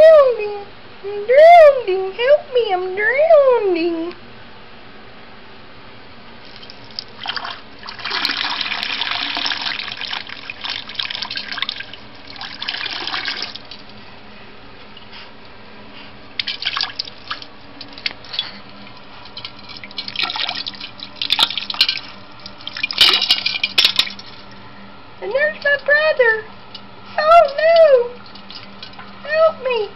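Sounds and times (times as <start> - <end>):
toilet flushing: 7.2 - 13.8.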